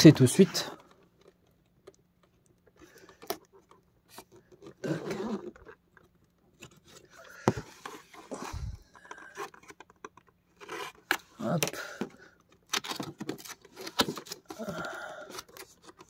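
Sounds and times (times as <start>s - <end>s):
knife scraping cardboard: 10.6s - 11.1s.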